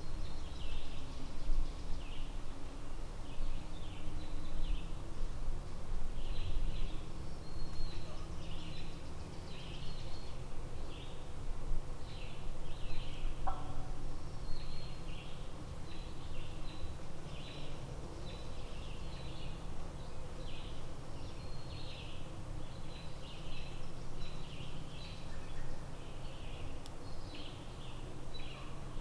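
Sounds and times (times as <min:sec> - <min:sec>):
high chirping birdsong: 0:06.1 - 0:11.3, 0:12.0 - 0:29.0
low bird call: 0:12.9 - 0:14.0.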